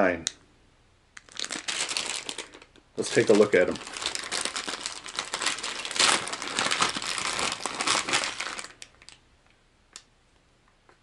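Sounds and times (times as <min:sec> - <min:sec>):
plastic package crinkling: 0:01.2 - 0:09.2.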